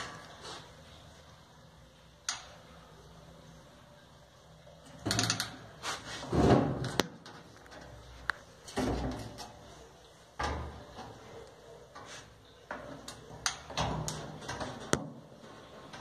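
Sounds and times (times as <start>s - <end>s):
scrape on metal: 5.8s - 6.4s, 12.0s - 12.4s.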